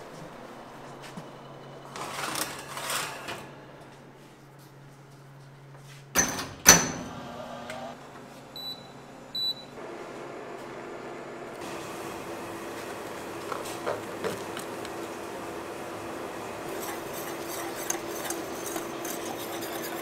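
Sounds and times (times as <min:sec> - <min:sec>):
metal tray scraping onto oven rack: 0:02.0 - 0:03.6
oven door banging shut: 0:06.2 - 0:07.2
short electronic beeps: 0:08.6 - 0:09.7.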